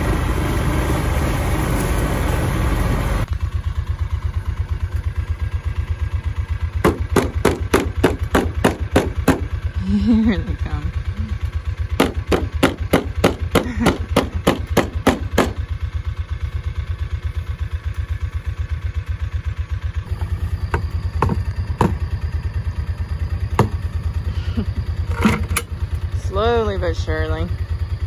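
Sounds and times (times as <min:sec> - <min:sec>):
engine throbbing: 0:00.0 - 0:28.0
knocks: 0:20.7 - 0:22.0.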